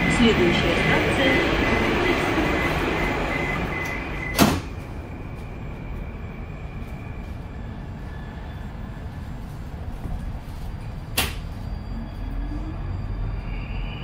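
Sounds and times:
warning beep: 0.0s - 4.6s
train doors shutting thud: 3.8s - 4.9s.

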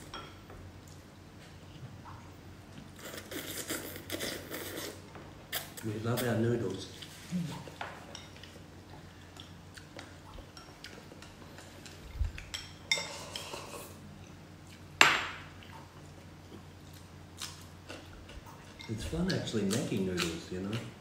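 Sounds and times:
chopsticks clinking on bowls: 10.5s - 13.8s, 18.6s - 20.9s.

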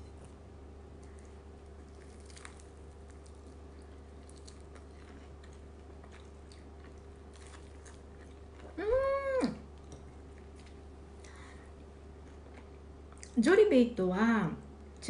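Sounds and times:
crunching chewing: 0.0s - 8.8s
person humming: 8.8s - 9.6s.

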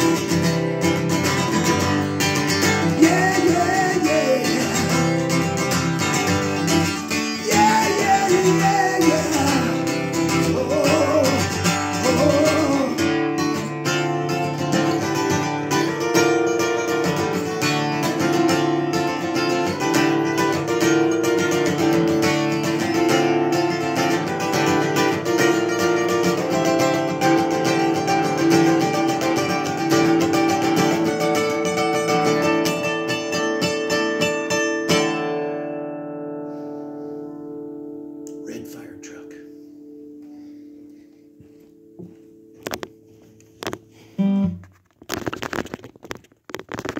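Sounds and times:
acoustic guitar strumming: 0.0s - 46.9s
person vocalizing wordlessly: 7.4s - 13.0s.

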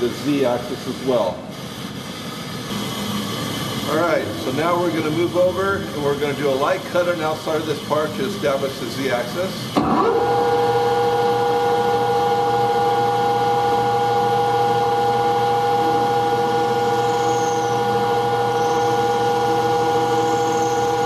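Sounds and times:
lathe spindle whine: 0.0s - 21.0s
low hum: 2.9s - 7.5s, 10.9s - 21.0s.

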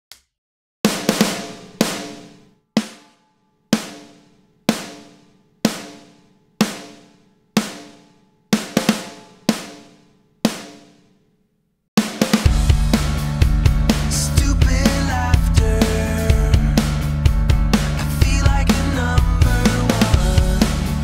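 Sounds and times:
snare drum hits: 0.9s - 3.2s, 3.8s - 11.0s, 12.0s - 13.1s.

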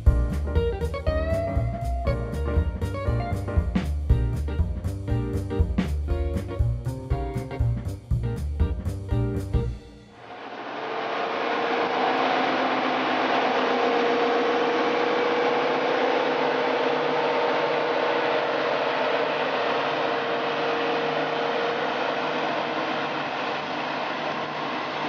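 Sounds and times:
diesel locomotive engine drone: 10.1s - 25.0s.

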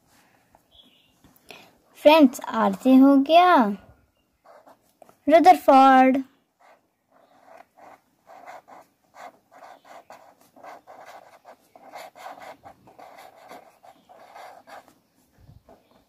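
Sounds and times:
pen scratching on paper: 4.4s - 5.2s, 6.6s - 16.0s.

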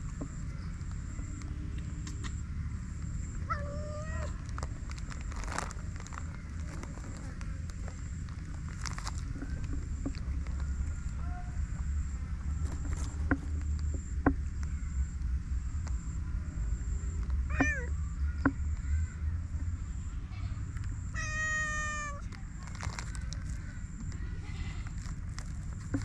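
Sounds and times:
low steady rumble: 0.0s - 26.0s
cat meowing: 3.5s - 4.4s, 17.5s - 17.9s, 21.2s - 22.2s.

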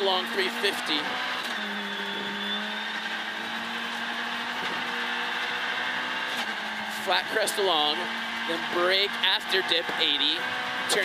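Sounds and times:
rally car engine at high revs: 0.0s - 11.0s.

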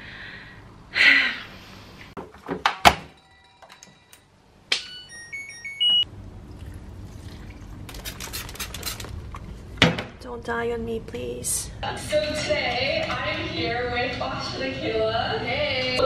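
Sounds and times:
washing machine panel beeping: 4.8s - 6.1s
washing machine low hum: 5.4s - 11.4s.

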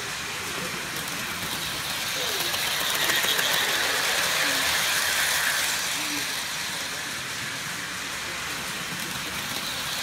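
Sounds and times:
model train running on metal track: 0.0s - 10.0s.

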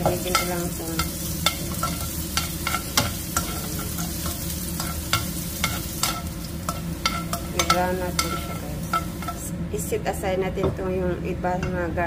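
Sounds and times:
metal tongs scraping a pan: 0.0s - 9.5s
garlic sizzling in hot oil: 0.0s - 9.7s.

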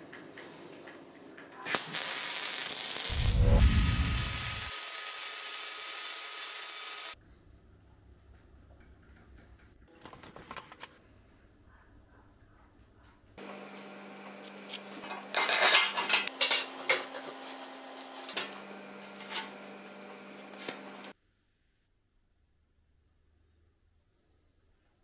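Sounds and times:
steady hum: 3.1s - 4.7s.

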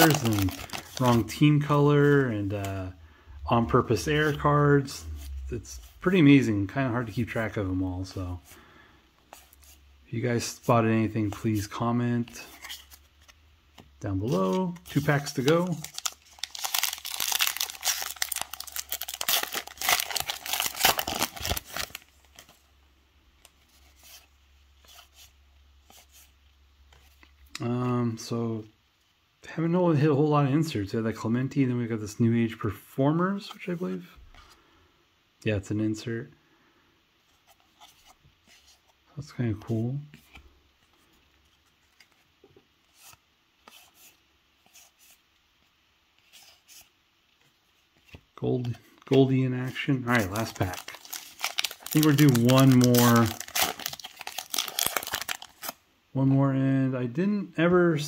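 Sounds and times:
wrapper tearing and crinkling: 0.0s - 1.2s, 14.5s - 22.5s, 50.0s - 55.8s.

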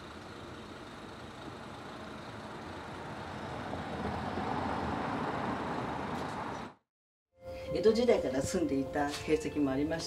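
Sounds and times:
road vehicle passing: 0.0s - 6.8s.

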